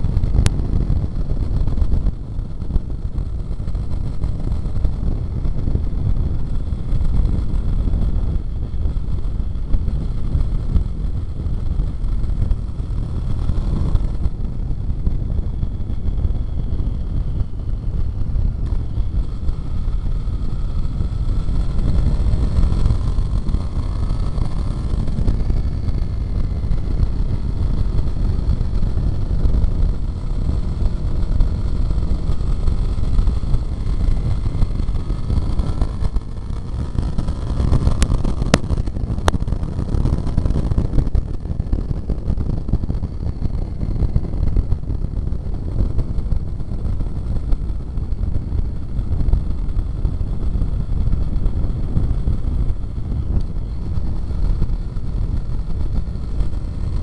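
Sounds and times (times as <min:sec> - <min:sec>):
motorcycle engine and exhaust: 0:00.0 - 0:57.0
wind rumble on microphone: 0:00.0 - 0:57.0.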